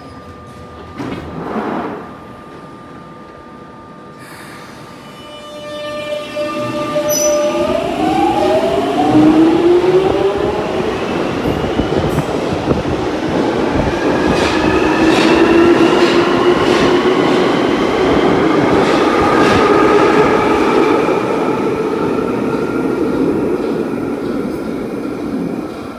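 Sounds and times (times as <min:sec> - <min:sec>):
train wheels clicking on rails: 0:11.2 - 0:20.0.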